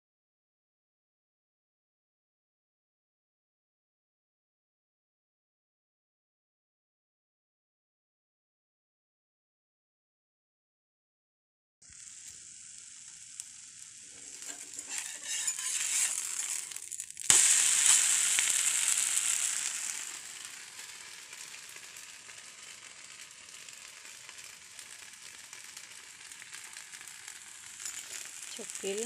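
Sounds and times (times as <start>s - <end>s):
crepe sizzling on hot pan: 11.8s - 29.0s.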